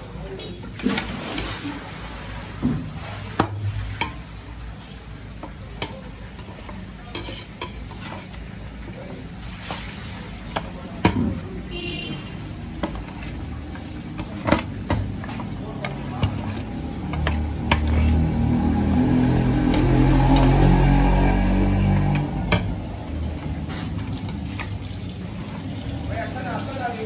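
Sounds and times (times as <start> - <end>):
metal ladle scraping a pan: 3.1 - 8.5, 12.1 - 26.0.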